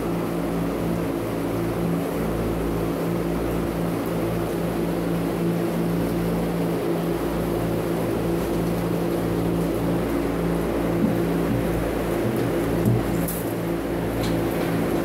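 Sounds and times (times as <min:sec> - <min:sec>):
machine drone with low tones: 0:06.4 - 0:15.0.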